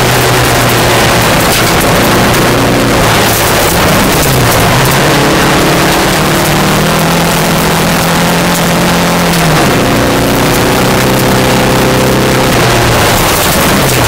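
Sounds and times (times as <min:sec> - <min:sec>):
rally car engine pulling hard: 0:00.0 - 0:14.0
tyres rushing on gravel: 0:00.0 - 0:14.0.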